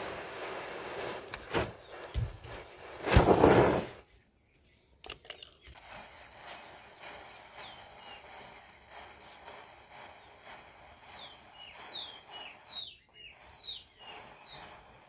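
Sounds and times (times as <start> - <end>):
firecracker bang: 3.0 - 4.0
falling bird chirp: 11.0 - 14.8.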